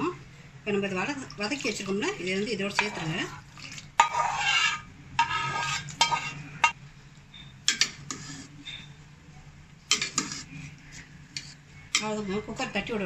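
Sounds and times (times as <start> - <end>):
water sloshing: 1.0 - 6.4
ladle scraping a pan: 2.6 - 6.8, 7.7 - 9.0, 9.9 - 12.2
metal ladle clinking on pan: 4.0 - 6.8.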